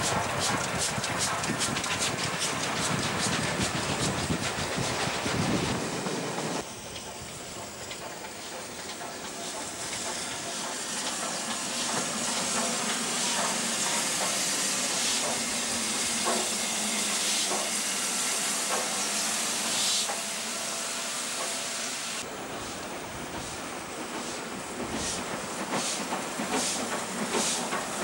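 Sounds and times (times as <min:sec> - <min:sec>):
locomotive wheels knocking: 0:00.0 - 0:15.5
steam locomotive hissing steam: 0:00.0 - 0:28.0.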